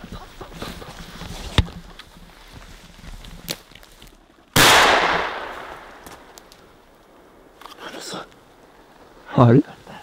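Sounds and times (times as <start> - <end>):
shotgun shot: 4.6 - 6.3.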